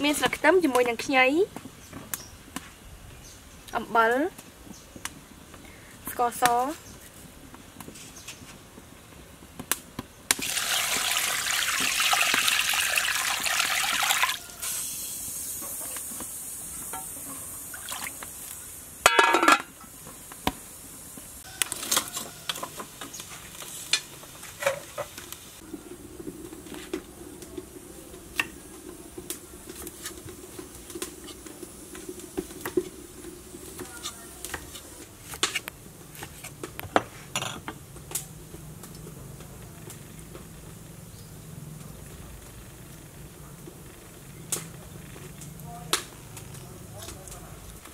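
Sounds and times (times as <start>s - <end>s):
wood fire crackling: 0.0s - 47.9s
water trickling: 10.4s - 14.6s
water pouring into metal pot: 10.4s - 14.8s, 17.7s - 18.3s.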